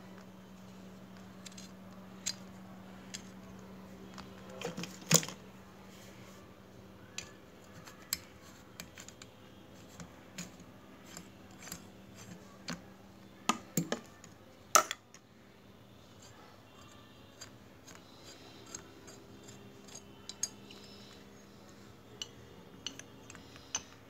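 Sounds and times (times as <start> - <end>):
small metal parts clicking: 17.4 - 21.2, 22.2 - 24.0.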